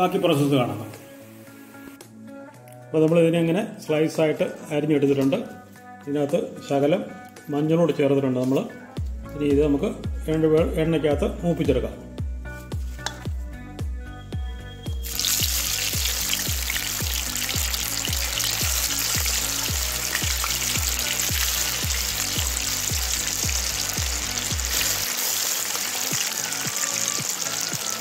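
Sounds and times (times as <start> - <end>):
background music with steady beat: 0.0 - 28.0
banana slices sizzling in oil: 15.0 - 28.0.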